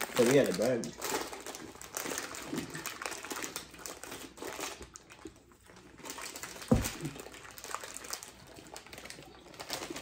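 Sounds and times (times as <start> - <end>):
plastic wrappers crinkling: 0.0 - 10.0
dull thump: 6.7 - 7.0.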